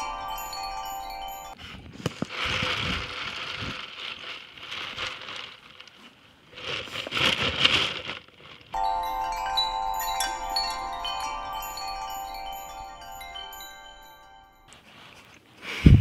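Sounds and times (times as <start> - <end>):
wind chimes ringing: 0.0 - 1.6, 8.8 - 14.7.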